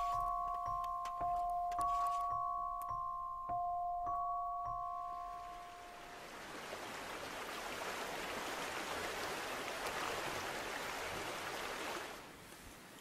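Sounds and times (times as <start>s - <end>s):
flowing water rushing: 4.7s - 12.9s.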